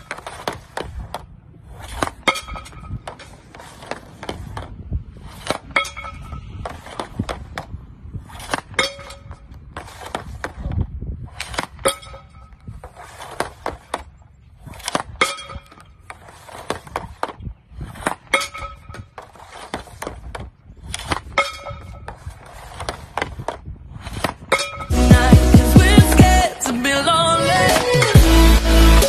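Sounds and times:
puck clanking on metal target: 0.0s - 7.8s, 8.4s - 10.8s, 11.4s - 14.2s, 14.8s - 25.1s
hockey stick shot crack: 0.0s - 25.0s
puck clatter: 0.0s - 26.4s.

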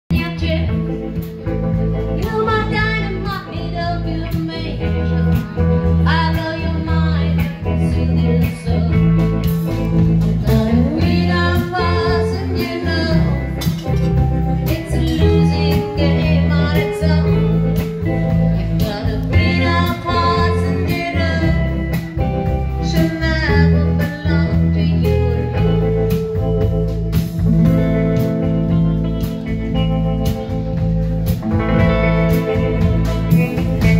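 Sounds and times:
drum kit: 0.1s - 33.9s
electric guitar: 0.1s - 33.9s
upright double bass: 0.1s - 33.9s
person singing: 10.4s - 26.0s.

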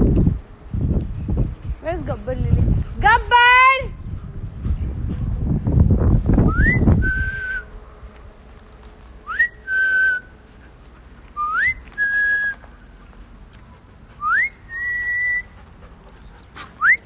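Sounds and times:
person whistling: 6.5s - 7.7s, 9.3s - 10.3s, 11.4s - 12.6s, 14.2s - 15.6s, 16.8s - 17.0s.

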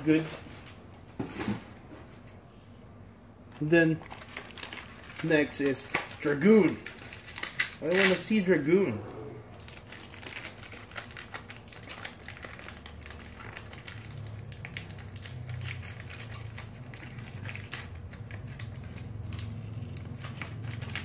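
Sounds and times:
low steady hum: 0.0s - 21.0s
plastic packaging crinkling: 4.0s - 8.7s, 9.5s - 21.0s.

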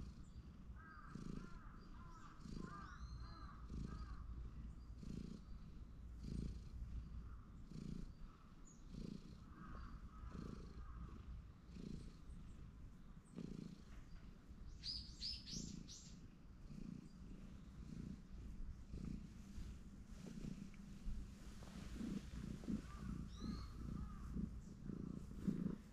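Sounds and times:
cat purring: 0.0s - 25.9s
bird chirps: 0.2s - 4.1s, 14.1s - 16.2s, 22.9s - 24.8s.

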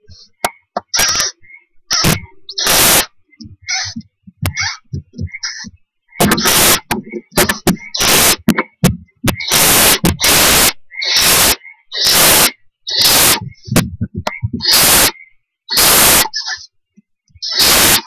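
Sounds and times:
owlets hissing: 0.0s - 16.7s, 17.4s - 18.0s.

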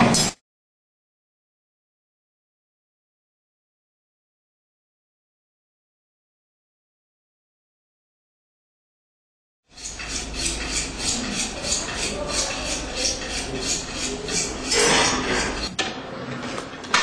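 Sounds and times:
steady low hum: 9.7s - 15.7s
rhythmic clinking: 9.8s - 15.7s.

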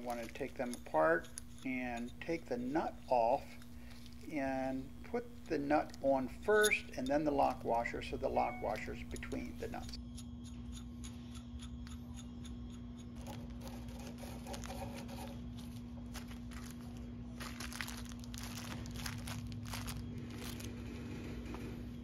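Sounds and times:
plastic bag crinkling: 0.0s - 0.8s, 13.2s - 21.3s
low hum: 0.0s - 22.0s.

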